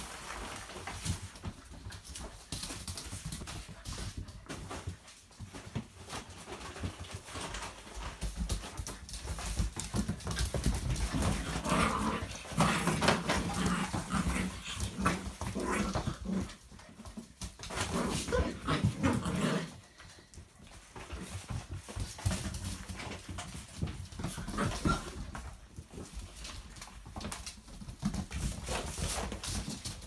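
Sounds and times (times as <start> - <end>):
puppy claws skittering on floor: 0.0 - 30.0
puppies growling and whining: 11.1 - 16.6, 17.7 - 19.9.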